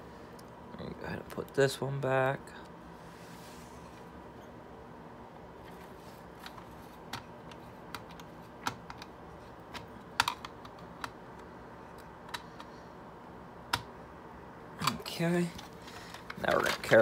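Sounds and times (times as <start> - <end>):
plastic parts clicking and tapping: 6.4 - 11.2.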